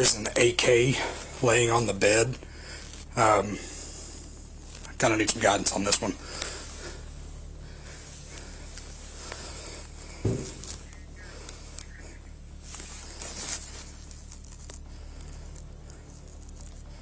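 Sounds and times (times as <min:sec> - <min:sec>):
steady low hum: 0:00.0 - 0:17.0
clothing rustling against camera: 0:06.2 - 0:17.0
dull thump: 0:10.2 - 0:10.8.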